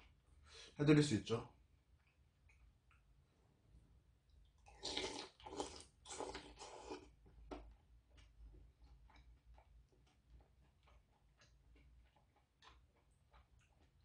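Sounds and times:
chewing with wet clicks: 1.5 - 3.2, 4.2 - 14.0
person slurping soup: 4.7 - 7.1.

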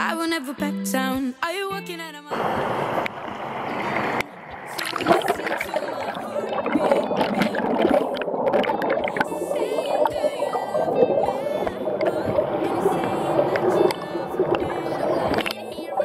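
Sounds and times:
guitar song: 0.0 - 16.0
water gurgling and splashing: 2.4 - 16.0.

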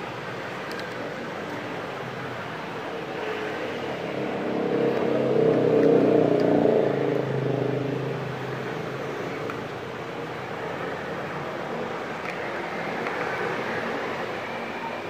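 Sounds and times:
vehicle engine passing by: 3.0 - 11.2.

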